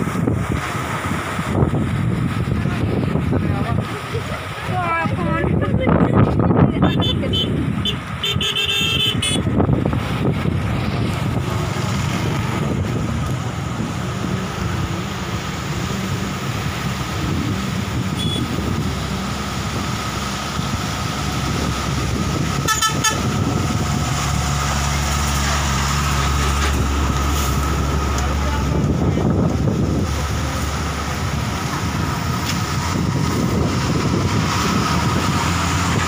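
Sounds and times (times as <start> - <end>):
rumble of heavy trucks: 0.0 - 36.0
truck horn toots: 6.8 - 9.5, 18.1 - 18.6, 22.6 - 23.4.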